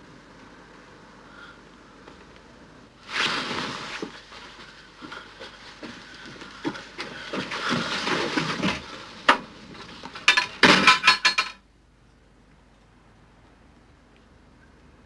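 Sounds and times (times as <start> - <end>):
movement noise: 3.0 - 10.6.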